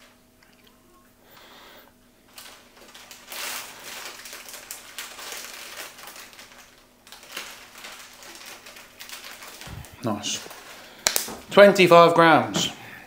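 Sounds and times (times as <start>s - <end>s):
plastic crinkling: 2.3s - 11.8s.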